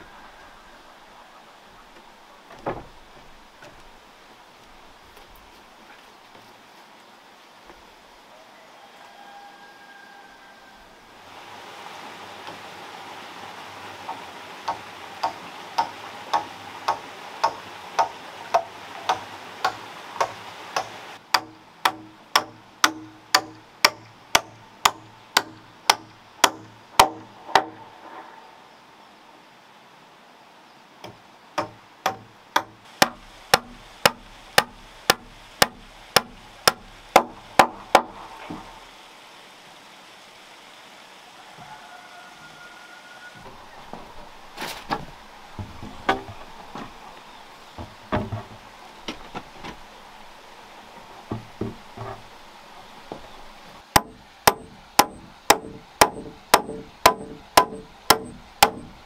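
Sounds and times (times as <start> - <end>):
hammer striking wooden beam: 14.1 - 27.8, 31.0 - 38.7, 45.6 - 46.9, 51.3 - 52.2, 53.9 - 59.0.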